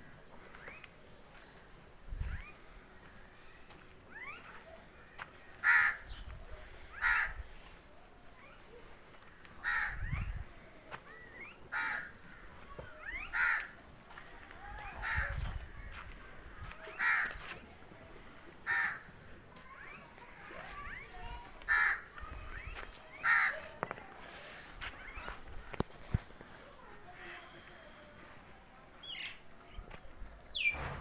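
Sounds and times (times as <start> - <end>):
crow cawing: 5.6 - 6.2, 7.0 - 7.4, 9.4 - 10.0, 11.7 - 12.5, 13.3 - 13.8, 15.0 - 16.1, 16.9 - 17.4, 18.6 - 19.1, 21.7 - 22.2, 23.2 - 23.6.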